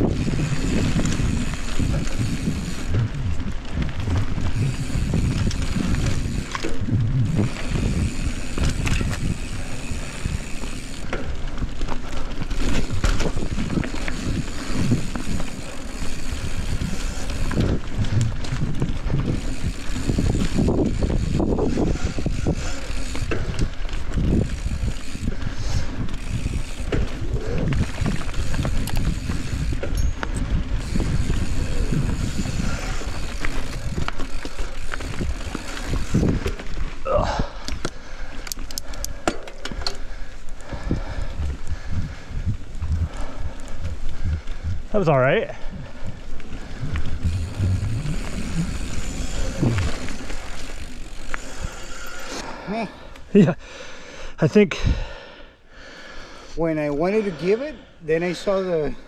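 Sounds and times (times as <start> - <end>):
freehub ratcheting: 0.0 - 41.2, 46.7 - 52.4
bike rattling over bumps: 0.0 - 53.6
bike tyres rolling over dirt: 0.0 - 53.7.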